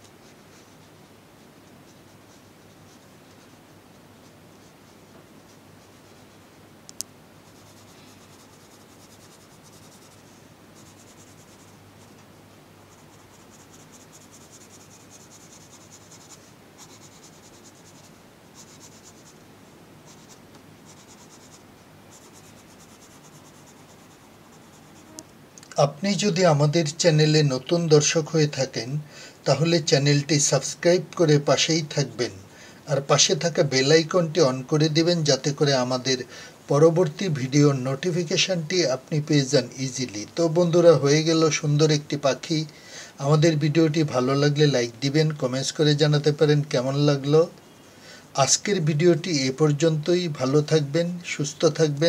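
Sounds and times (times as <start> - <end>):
pencil shading on paper: 0.1 - 6.5, 7.4 - 12.2, 12.9 - 19.4, 20.1 - 25.2.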